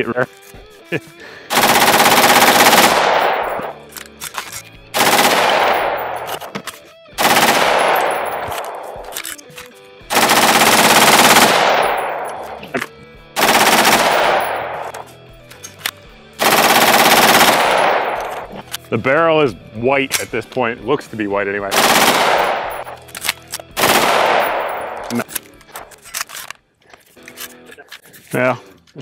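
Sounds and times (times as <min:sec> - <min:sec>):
automatic rifle bursts with echo: 0:01.5 - 0:03.9, 0:05.0 - 0:06.5, 0:07.2 - 0:09.3, 0:10.1 - 0:12.6, 0:13.4 - 0:15.1, 0:16.4 - 0:18.6, 0:21.7 - 0:23.1, 0:23.8 - 0:25.3.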